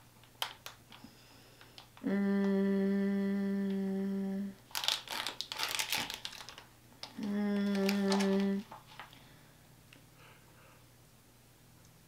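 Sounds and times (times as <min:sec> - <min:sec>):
plastic wrapper crinkling: 0:00.3 - 0:01.0, 0:04.7 - 0:09.2
person humming a steady note: 0:02.0 - 0:04.6, 0:07.2 - 0:08.7.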